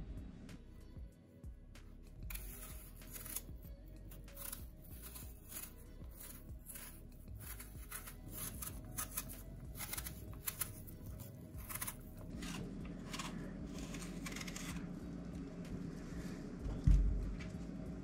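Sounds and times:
knife peeling an apple: 2.3s - 14.9s.

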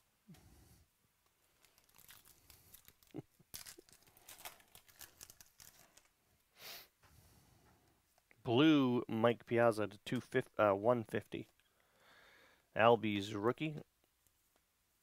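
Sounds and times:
foil wrapper crinkling: 1.4s - 6.2s
foil wrapper ripping: 1.6s - 6.1s.

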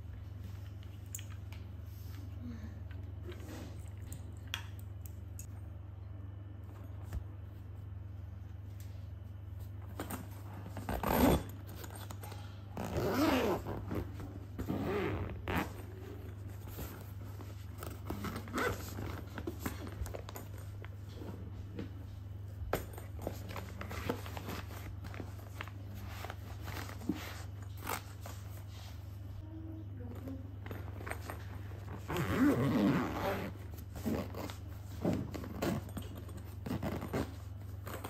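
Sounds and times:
steady low hum: 0.0s - 38.0s
zipper rasping open: 10.7s - 12.1s, 12.8s - 17.0s, 17.7s - 20.4s, 31.0s - 38.0s.

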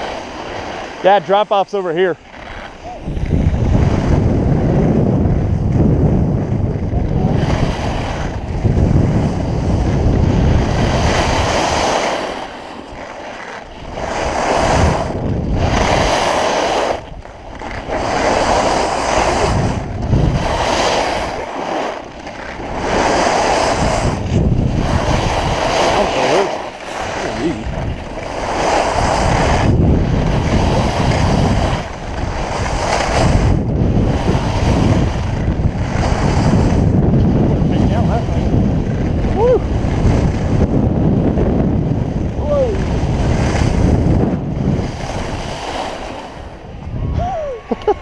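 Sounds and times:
skis scraping on snow: 0.0s - 46.6s
wind rushing over microphone: 0.0s - 48.0s.

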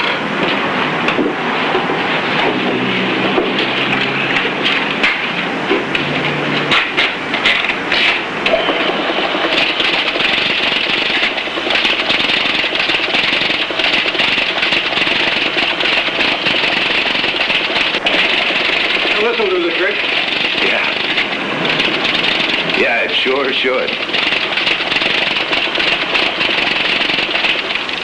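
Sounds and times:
typewriter clatter: 6.6s - 28.0s.

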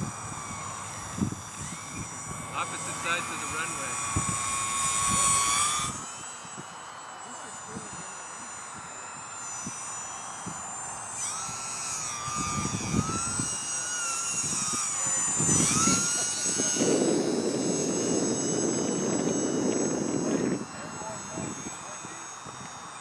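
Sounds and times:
model plane motor whining: 0.0s - 23.0s.

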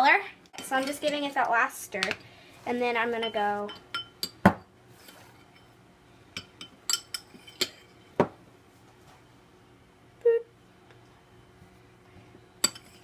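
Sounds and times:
teaspoon clinking against glass bowl: 3.2s - 4.4s, 6.4s - 8.0s, 12.6s - 13.0s.

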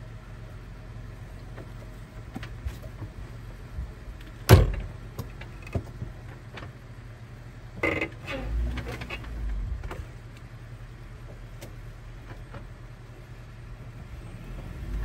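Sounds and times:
car engine idling: 0.0s - 15.0s
car door slamming: 4.4s - 5.0s.

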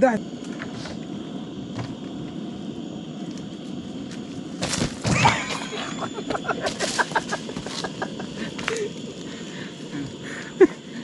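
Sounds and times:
thud: 4.6s - 5.4s
leaves rustling: 6.6s - 9.0s.

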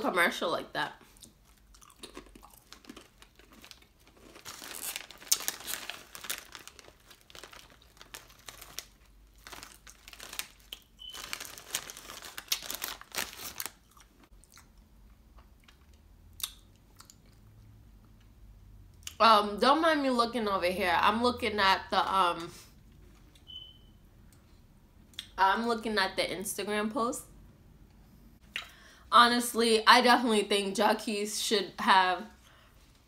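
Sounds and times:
crunching potato chips: 1.1s - 17.5s
foil bag crinkling: 1.5s - 14.2s.

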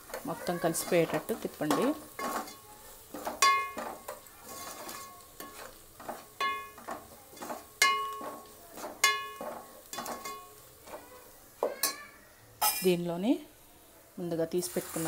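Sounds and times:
faint oil sizzling: 0.0s - 15.0s
metal ladle scraping a pot: 0.1s - 11.0s
ladle clinking on pot: 3.2s - 10.5s.

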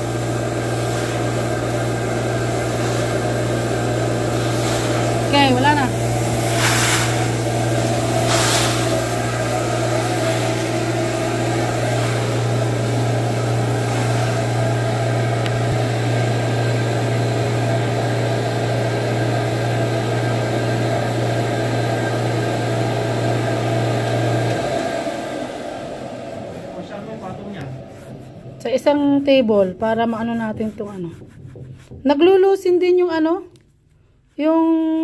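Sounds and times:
carpet shampoo machine motor hum: 0.0s - 29.2s.

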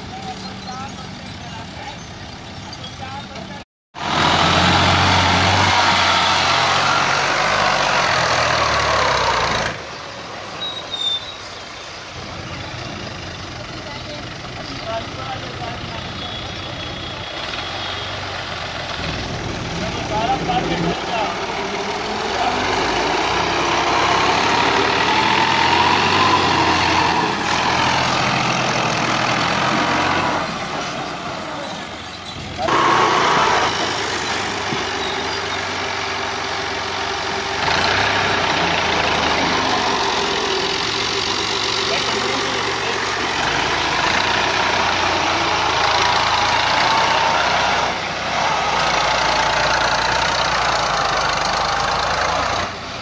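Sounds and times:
tractor diesel engine running: 11.8s - 53.0s.

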